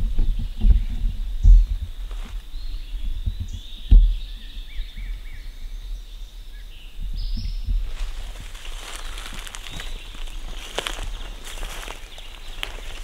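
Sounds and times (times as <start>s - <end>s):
birds singing: 0.0s - 13.0s
sharp low thump: 3.3s - 4.3s
footsteps through leaf litter: 7.9s - 13.0s.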